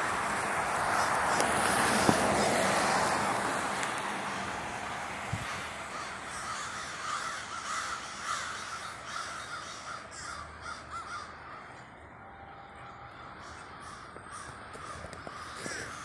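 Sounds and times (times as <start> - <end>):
crows cawing: 5.8 - 16.0.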